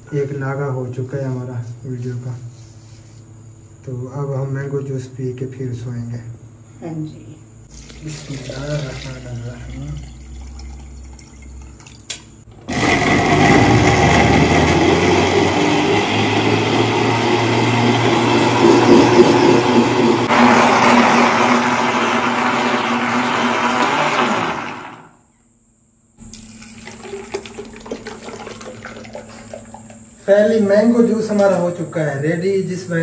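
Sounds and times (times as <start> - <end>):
juice pouring into a jug: 7.7 - 15.1, 26.2 - 30.2
electric blender running: 12.5 - 25.2.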